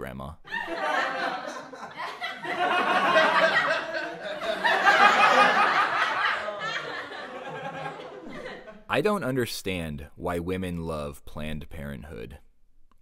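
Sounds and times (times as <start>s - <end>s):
audience laughing: 0.5s - 8.9s.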